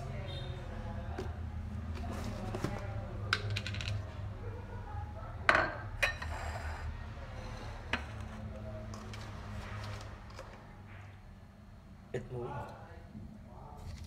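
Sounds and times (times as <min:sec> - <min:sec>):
dishes clinking: 0:05.5 - 0:06.9.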